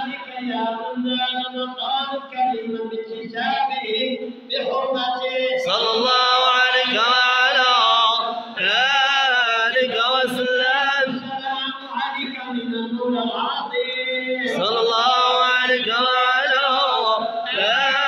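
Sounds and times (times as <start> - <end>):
men chanting together: 4.6 - 13.8, 14.4 - 18.0.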